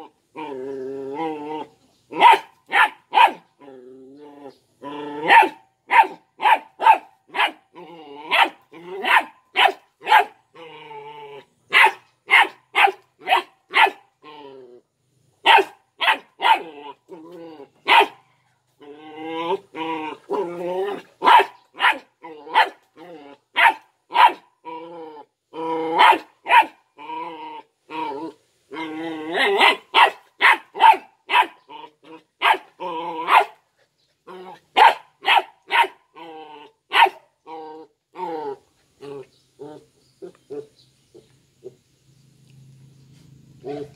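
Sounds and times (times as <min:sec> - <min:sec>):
puppy growling: 0:00.0 - 0:02.3, 0:03.6 - 0:05.6, 0:07.4 - 0:09.3, 0:10.5 - 0:11.6, 0:14.2 - 0:14.9, 0:16.4 - 0:18.0, 0:18.7 - 0:23.8, 0:24.6 - 0:26.2, 0:27.0 - 0:29.9, 0:31.6 - 0:33.6, 0:34.2 - 0:34.9, 0:36.1 - 0:40.7, 0:43.6 - 0:43.9
puppy barking in high yaps: 0:02.2 - 0:03.4, 0:05.2 - 0:07.6, 0:08.3 - 0:10.4, 0:11.7 - 0:14.0, 0:15.4 - 0:16.6, 0:17.8 - 0:18.2, 0:21.2 - 0:22.8, 0:23.6 - 0:24.4, 0:26.0 - 0:26.8, 0:29.6 - 0:31.6, 0:32.4 - 0:33.6, 0:34.8 - 0:36.0, 0:36.9 - 0:37.2.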